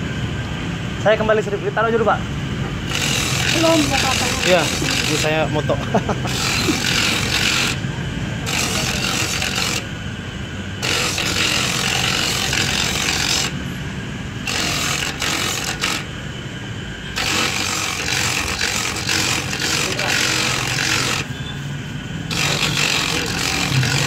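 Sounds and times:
grater motor hum: 2.7s - 16.3s, 16.9s - 24.0s
coconut rasping on grater: 2.9s - 5.5s, 6.3s - 7.8s, 8.5s - 9.9s, 10.8s - 13.6s, 14.4s - 16.1s, 17.1s - 21.4s, 22.3s - 24.0s.

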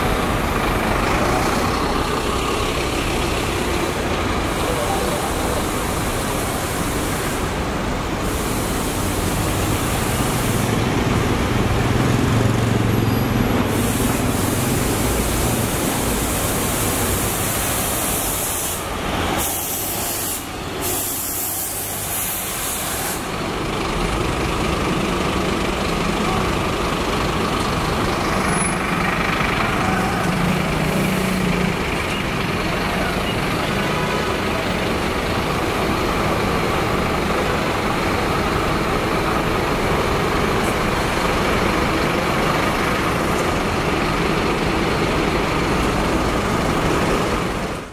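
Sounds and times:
buses and truck driving past: 0.0s - 47.9s.

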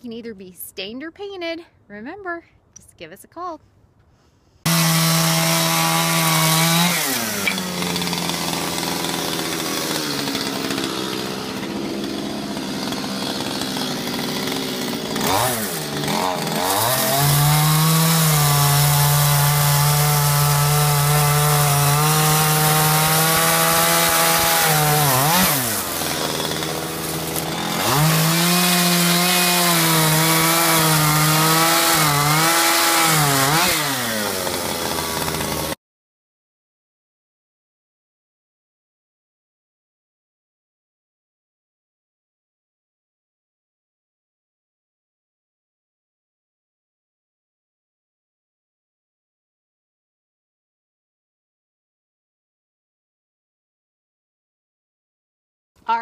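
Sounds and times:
chainsaw cutting wood: 4.6s - 35.8s.

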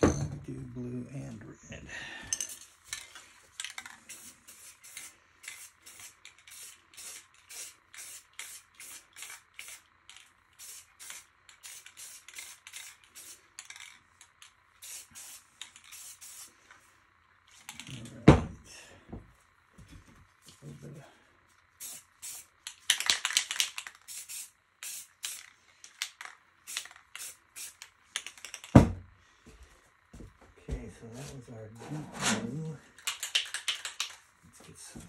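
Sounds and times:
spray paint can bursts: 3.6s - 16.5s, 21.8s - 28.7s, 33.1s - 34.2s.

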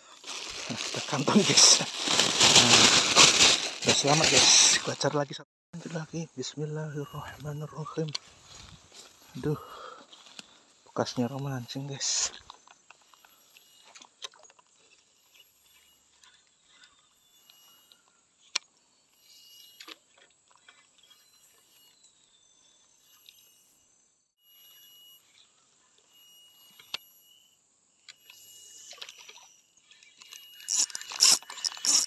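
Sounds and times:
high pulsing insects: 0.0s - 32.0s
fishing rod clicks and rustles: 12.0s - 21.9s, 28.0s - 32.0s
thin whistle-like tones: 21.0s - 32.0s.

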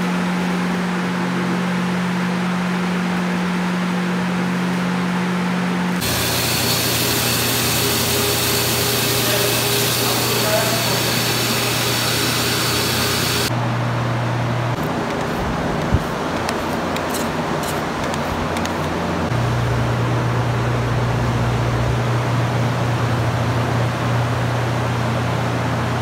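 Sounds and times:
extraction wand hissing: 6.0s - 13.5s
blowers humming: 6.0s - 20.3s.

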